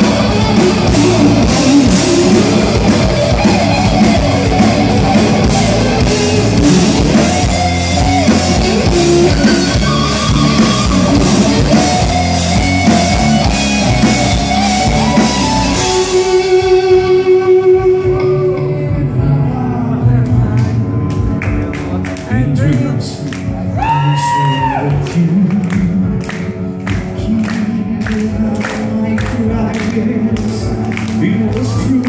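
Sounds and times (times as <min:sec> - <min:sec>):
drum kit: 0:00.0 - 0:19.1
bass guitar: 0:00.0 - 0:32.0
electric guitars: 0:00.0 - 0:32.0.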